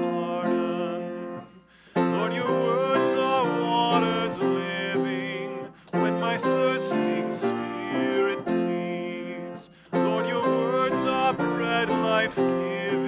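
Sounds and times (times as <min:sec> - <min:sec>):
keyboard accompaniment: 0:00.0 - 0:13.0
man singing a hymn: 0:00.0 - 0:13.0.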